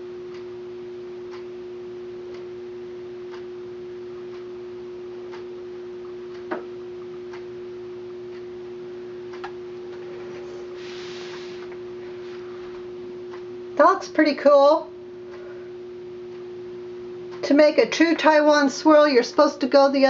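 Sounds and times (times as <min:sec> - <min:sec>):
steady hum: 0:00.0 - 0:20.0
soft rustle: 0:10.1 - 0:12.8.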